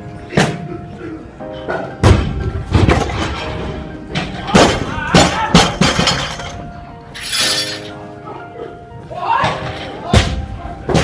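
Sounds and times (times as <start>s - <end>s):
plates and bar bouncing and clanking: 7.2s - 8.0s.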